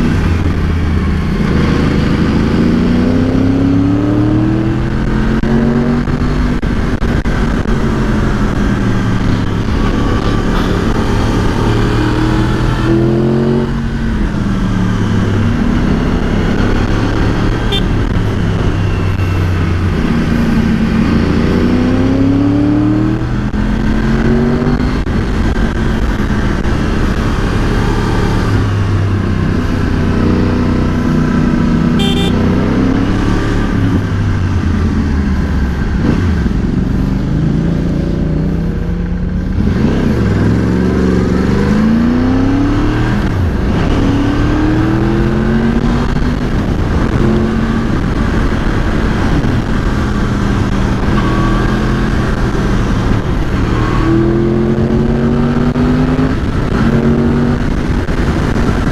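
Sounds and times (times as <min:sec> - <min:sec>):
motorcycle engine accelerating: 0:00.0 - 0:58.9
short high-pitched tone: 0:32.0 - 0:32.4.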